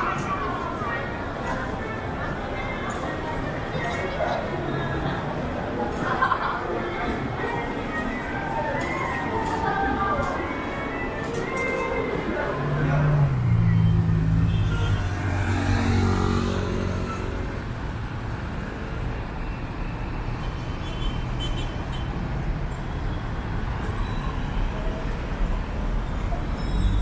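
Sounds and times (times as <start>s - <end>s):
rush of cars and tyres: 12.4s - 27.0s.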